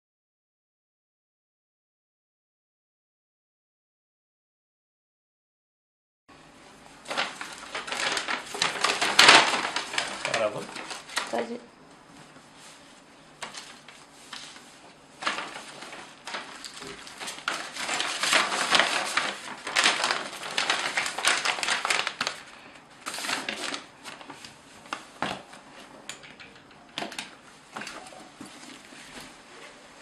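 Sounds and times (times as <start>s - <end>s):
paper rustling and crinkling: 7.0s - 30.0s.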